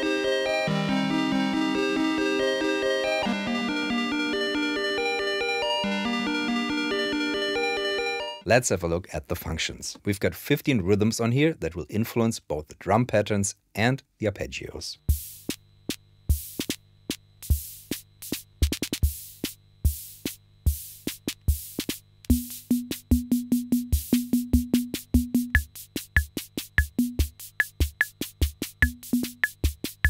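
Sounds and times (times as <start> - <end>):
drum machine pattern: 15.0 - 30.0.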